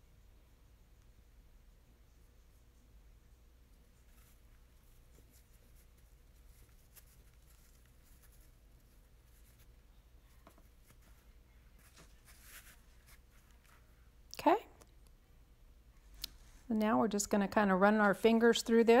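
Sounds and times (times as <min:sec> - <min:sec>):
netting rustling: 0:04.0 - 0:14.0.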